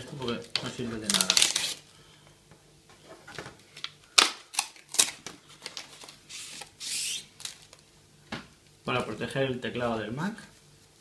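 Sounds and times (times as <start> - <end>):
paper and plastic rustling: 0.0 - 1.8, 3.3 - 7.8.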